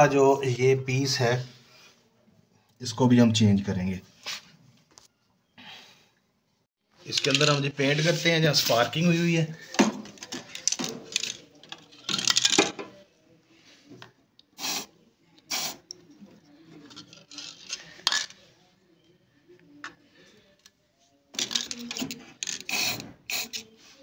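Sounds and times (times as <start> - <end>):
spray can hissing: 14.6 - 14.9, 15.5 - 15.9, 22.7 - 23.6.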